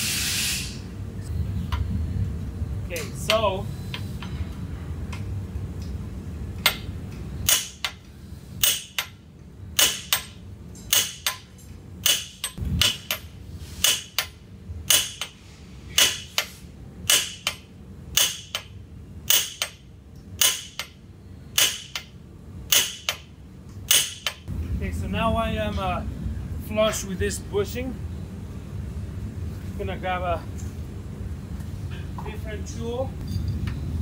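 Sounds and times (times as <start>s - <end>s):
mallet hammering metal shaft: 6.6s - 8.0s, 8.6s - 9.2s, 9.8s - 19.8s, 20.4s - 21.0s, 21.6s - 22.1s, 22.7s - 23.3s, 23.9s - 24.4s.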